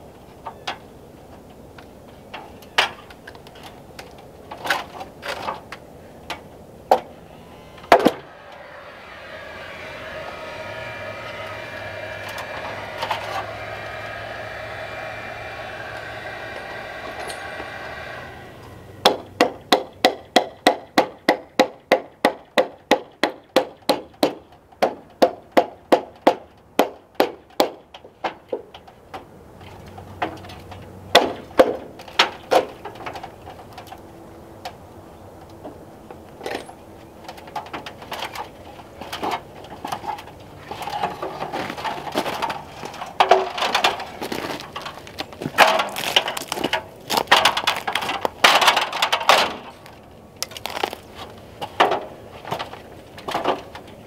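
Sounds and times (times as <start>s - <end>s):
lumber clattering: 40.9s - 53.6s.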